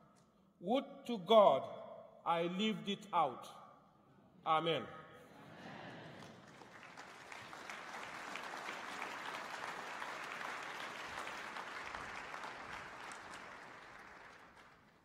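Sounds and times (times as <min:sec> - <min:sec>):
large audience applauding: 0:05.9 - 0:15.0.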